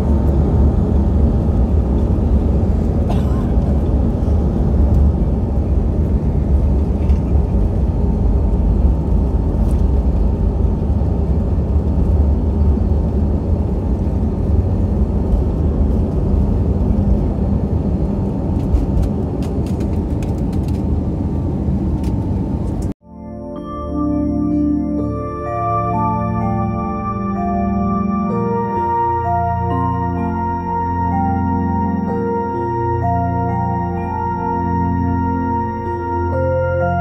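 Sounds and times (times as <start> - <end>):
jet engines at takeoff thrust: 0.0 - 22.9
soft ambient music: 23.0 - 37.0.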